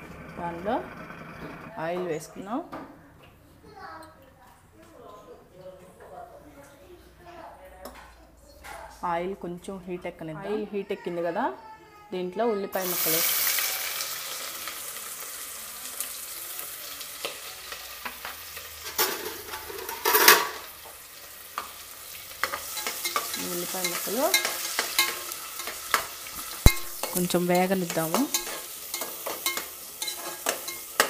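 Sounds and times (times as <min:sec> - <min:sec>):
spatula scraping a pot: 0:00.0 - 0:02.2, 0:21.6 - 0:31.0
onions sizzling in hot oil: 0:12.8 - 0:31.0.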